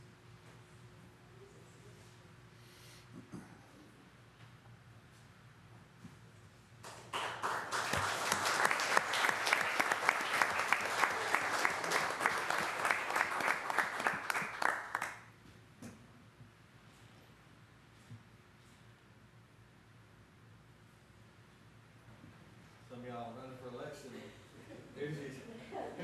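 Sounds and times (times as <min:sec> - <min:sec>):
audience applauding: 0:06.9 - 0:15.2.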